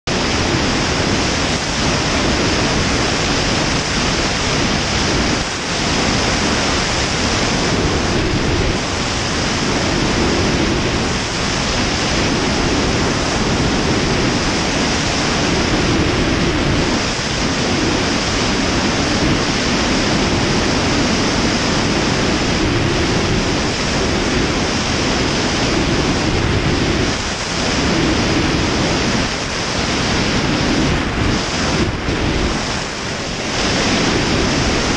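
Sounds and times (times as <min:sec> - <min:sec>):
wind noise on microphone: 0:00.0 - 0:34.9.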